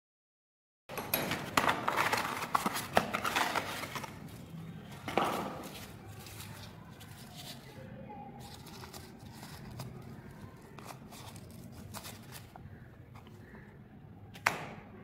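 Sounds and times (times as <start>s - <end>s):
tissue paper rustling and crinkling: 1.6s - 12.8s.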